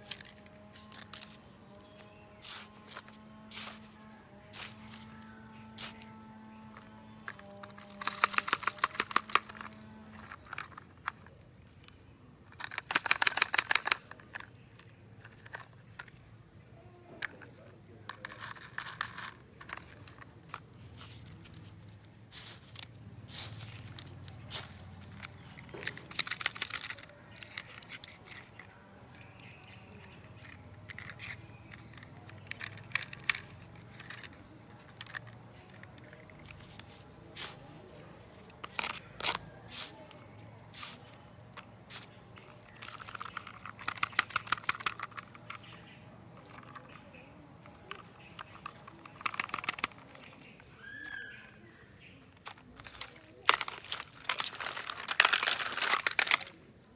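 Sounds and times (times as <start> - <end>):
faint music with held notes: 0.0 - 10.8
rapid clicking of toy mechanisms: 0.0 - 16.2, 16.9 - 50.7, 52.3 - 56.9
plastic toys handled in sand: 0.0 - 56.9.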